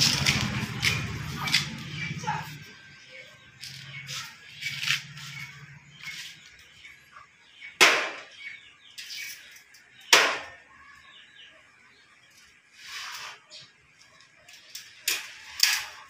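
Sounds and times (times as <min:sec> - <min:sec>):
metal window sash scraping and rattling: 0:14.6 - 0:16.0.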